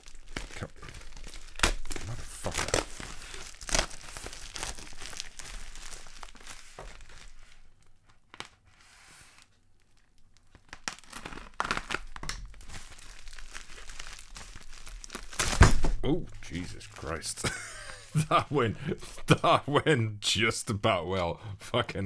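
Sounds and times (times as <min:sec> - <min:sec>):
foil mailer crinkling and tearing: 0:00.0 - 0:08.6, 0:09.2 - 0:15.8, 0:16.4 - 0:18.0.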